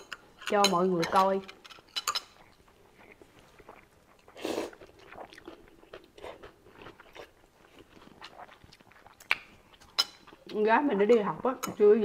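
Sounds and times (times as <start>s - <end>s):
soft chewing: 1.2s - 11.8s.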